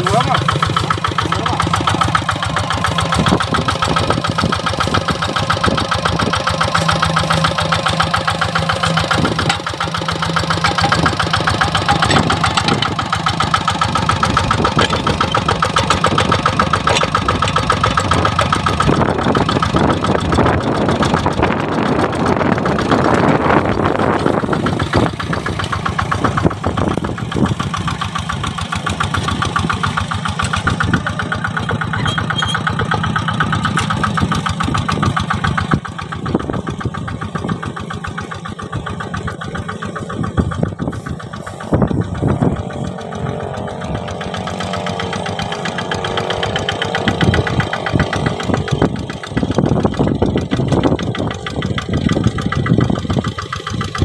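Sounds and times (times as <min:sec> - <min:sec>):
diesel tractor engine running: 0:00.0 - 0:54.0
rough rushing noise: 0:32.7 - 0:53.3.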